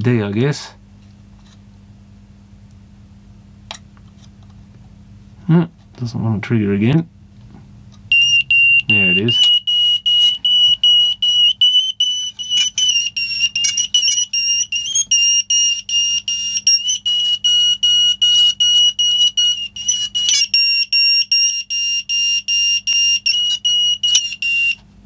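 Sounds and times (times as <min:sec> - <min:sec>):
smoke alarm beeping: 0:08.1 - 0:24.8.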